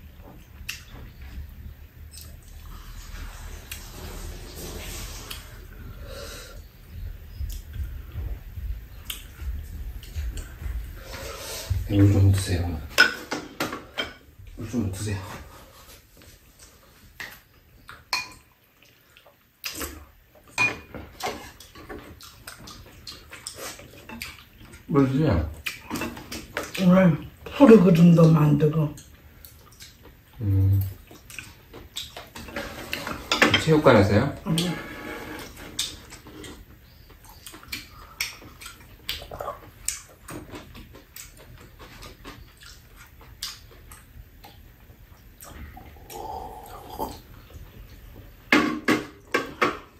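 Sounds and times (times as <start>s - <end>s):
chewing and lip-smacking: 9.0s - 10.7s, 21.5s - 24.9s, 25.5s - 26.8s, 29.0s - 32.4s, 35.4s - 48.0s
eating noises: 21.2s - 27.4s, 28.0s - 33.2s, 34.4s - 48.2s.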